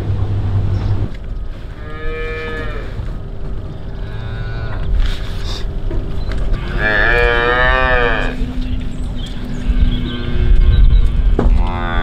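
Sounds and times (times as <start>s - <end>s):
calves mooing: 1.7s - 3.1s, 3.9s - 5.6s, 6.5s - 8.6s, 9.5s - 12.0s.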